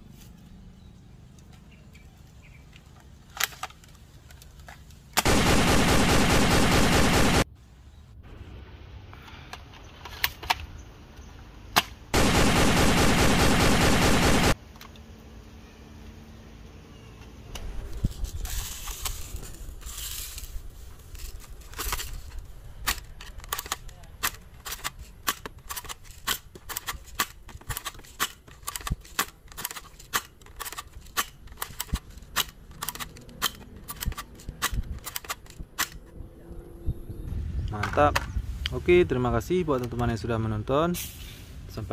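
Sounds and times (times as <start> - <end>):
automatic gunfire: 5.2 - 7.5, 12.2 - 14.6
sharp clicks: 22.8 - 36.2.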